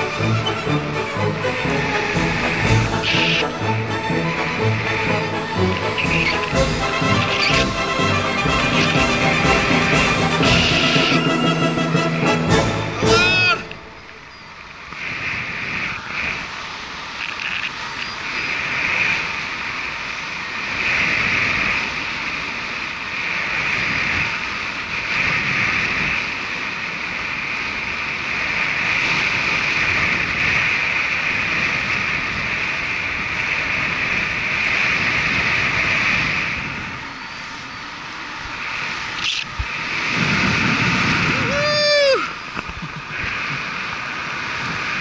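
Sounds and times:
wind hissing over microphone: 13.8 - 45.0.

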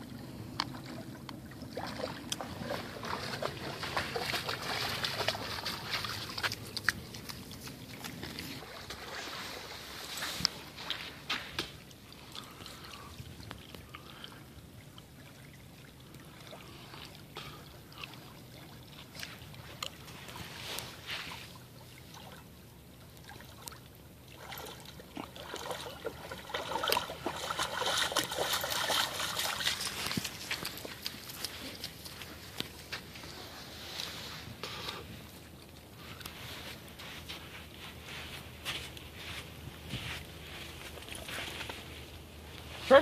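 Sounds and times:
dog splashing in creek water: 0.0 - 43.0.

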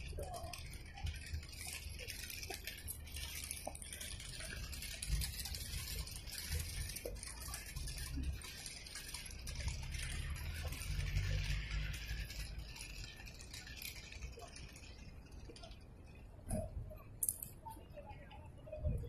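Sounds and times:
small clicks: 0.0 - 18.5.

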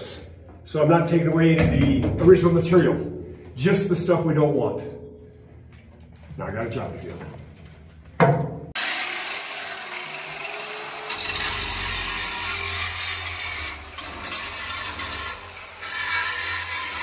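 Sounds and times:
angle grinder grinding metal: 8.8 - 17.0.

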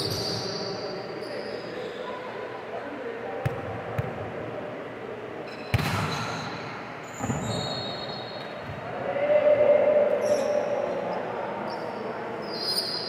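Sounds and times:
sneaker squeaks on court: 0.0 - 2.2, 5.5 - 8.8.

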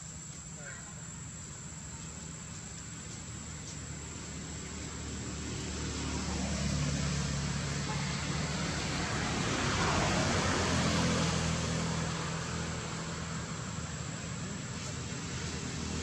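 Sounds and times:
vehicle passing: 3.3 - 16.0.

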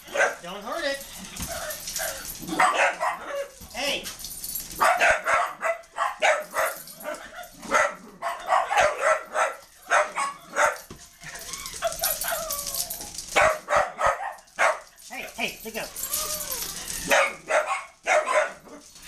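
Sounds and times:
small dogs yapping: 4.8 - 14.8, 16.0 - 18.8
dog whining: 11.2 - 13.2, 15.9 - 17.3.

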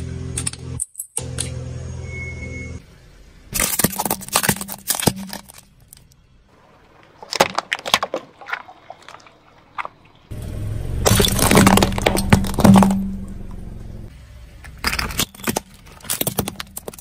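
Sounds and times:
tyre crushing plastic toys: 3.6 - 6.2, 7.0 - 9.3, 11.1 - 13.1, 14.7 - 17.0.

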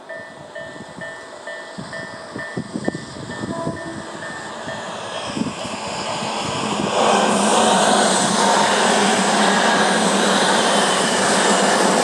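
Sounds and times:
level crossing warning bell: 0.0 - 4.9
train passing: 0.0 - 12.0.

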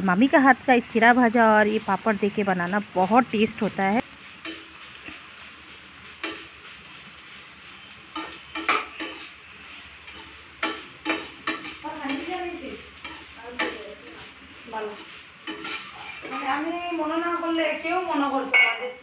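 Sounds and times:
frying sizzle: 0.0 - 19.0
spatula scraping pan: 7.8 - 17.1.

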